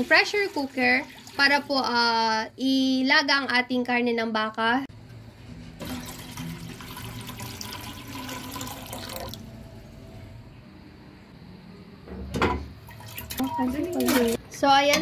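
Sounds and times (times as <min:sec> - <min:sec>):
water pouring into metal pot: 0:00.0 - 0:01.7, 0:05.8 - 0:09.4.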